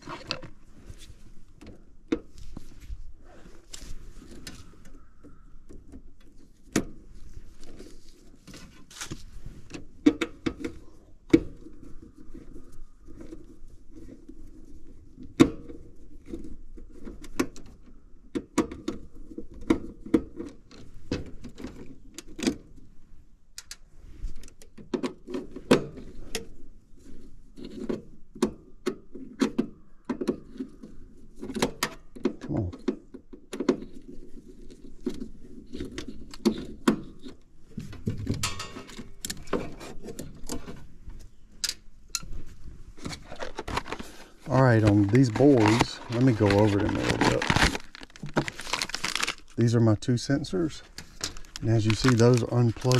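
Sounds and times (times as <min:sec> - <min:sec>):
rustling: 0:42.2 - 0:49.8, 0:50.6 - 0:52.9.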